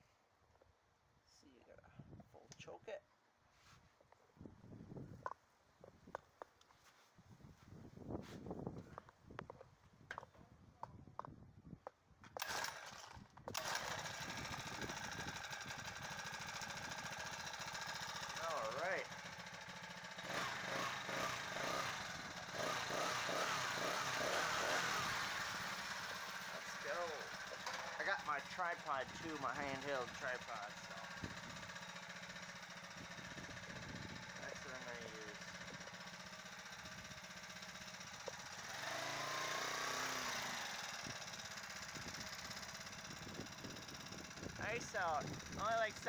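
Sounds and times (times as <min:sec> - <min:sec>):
small engine running: 0:12.4 - 0:46.0.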